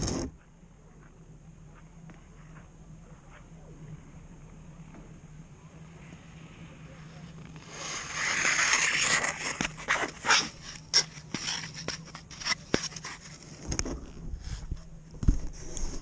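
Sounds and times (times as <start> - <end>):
ice skates scraping on ice: 7.6 - 13.6.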